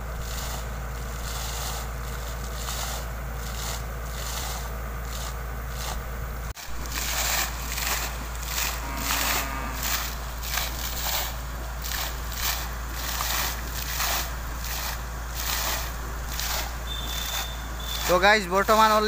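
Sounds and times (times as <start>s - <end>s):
water surging from pipe: 0.0s - 4.6s, 6.6s - 19.0s
water splashing onto mud: 6.6s - 19.0s.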